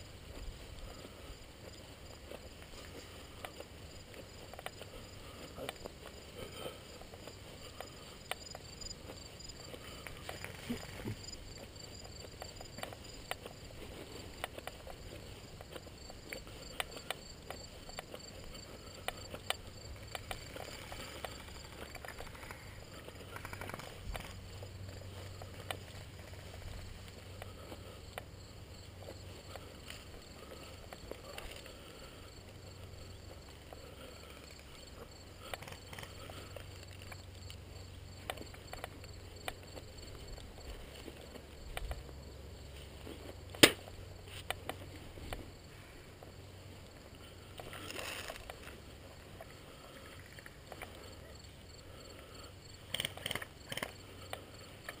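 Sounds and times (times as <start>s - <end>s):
footsteps through tall grass: 0.0s - 51.8s
insects chirping: 0.0s - 55.0s
gear clicks and knocks: 14.2s - 27.0s.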